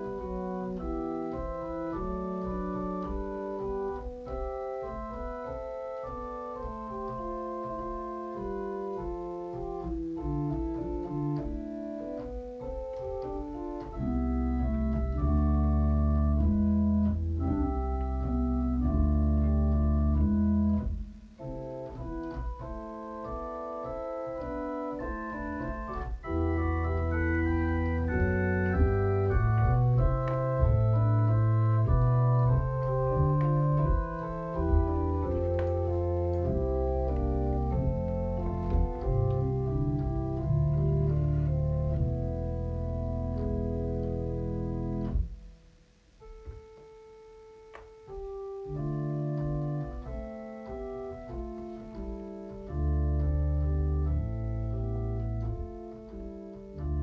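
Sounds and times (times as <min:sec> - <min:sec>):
organ sustained chords: 0:00.0 - 0:57.0
deep bass line: 0:13.6 - 0:23.4, 0:24.4 - 0:45.4, 0:51.3 - 0:55.9.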